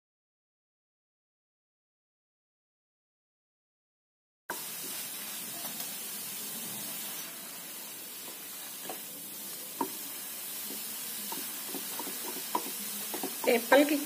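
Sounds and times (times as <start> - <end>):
grated apple sizzling in a pan: 4.5 - 14.0
wooden spatula tapping and scraping: 8.2 - 9.1, 9.7 - 14.0.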